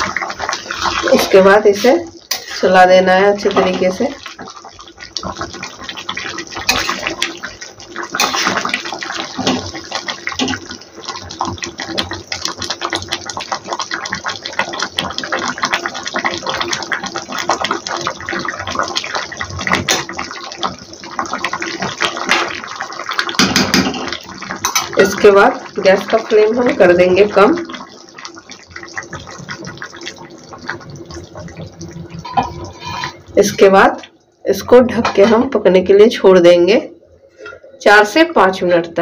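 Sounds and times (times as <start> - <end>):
gravy sloshing and bubbling: 0.0 - 35.8
spatula scraping metal pan: 2.3 - 2.8, 8.2 - 8.7, 32.2 - 33.3.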